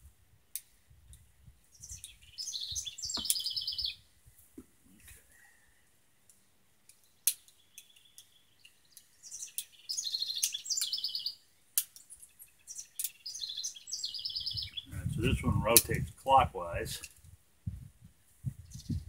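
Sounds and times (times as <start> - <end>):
songbird trilling: 1.7 - 4.0, 7.5 - 11.4, 12.5 - 15.1.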